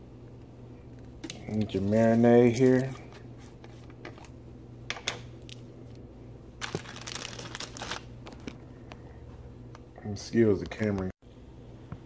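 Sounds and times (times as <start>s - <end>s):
plastic bag crinkling: 6.6s - 8.6s.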